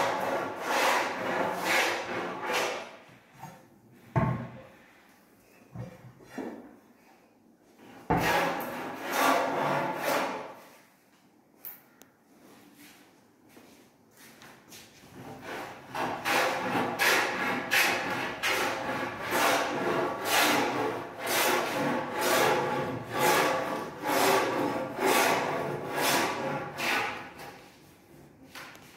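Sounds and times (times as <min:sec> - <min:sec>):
rasping strokes on hard surface: 0:00.0 - 0:03.0, 0:07.9 - 0:10.8, 0:15.1 - 0:28.3.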